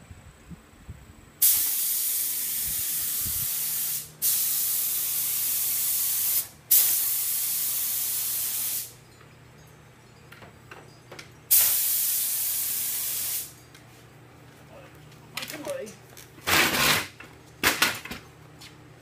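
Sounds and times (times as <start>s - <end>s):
spray gun hissing: 1.4s - 8.9s, 11.5s - 13.5s.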